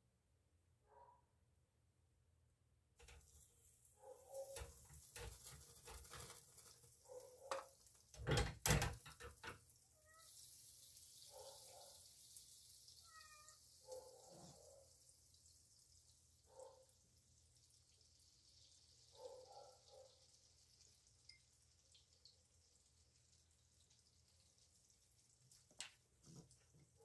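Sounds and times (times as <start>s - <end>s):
butter sizzling in frying pan: 3.0s - 19.2s, 19.8s - 27.0s.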